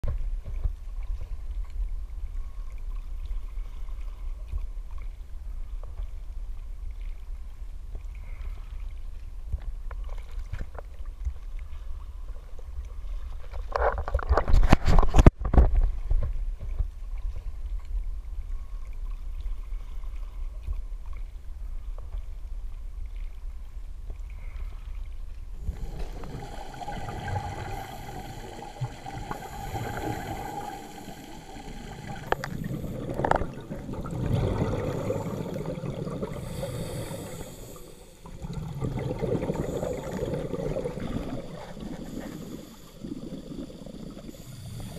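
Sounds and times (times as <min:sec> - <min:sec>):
underwater regulator bubbles: 0:25.6 - 0:44.9
water sloshing against camera housing: 0:32.0 - 0:34.6.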